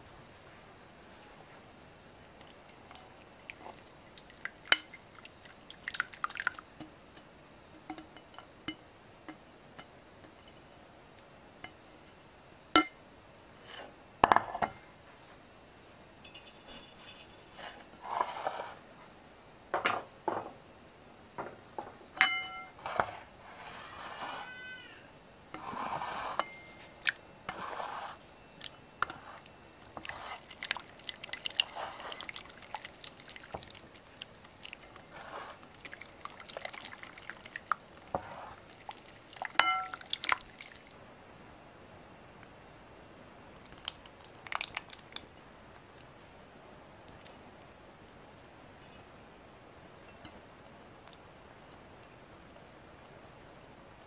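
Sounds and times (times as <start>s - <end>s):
whisk swishing in liquid: 29.1s - 39.5s.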